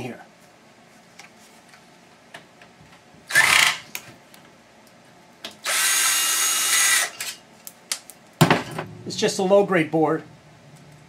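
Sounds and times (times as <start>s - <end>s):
power drill running: 3.3s - 3.8s, 5.6s - 7.3s.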